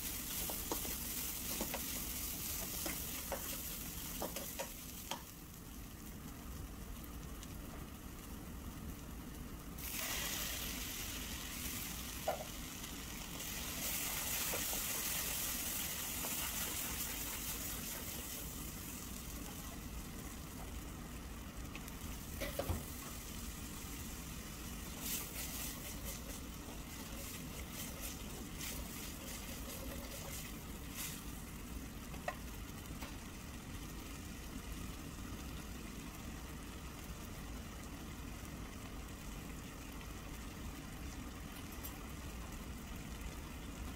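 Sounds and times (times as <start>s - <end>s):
sauce sizzling in a hot pan: 0.0s - 43.9s.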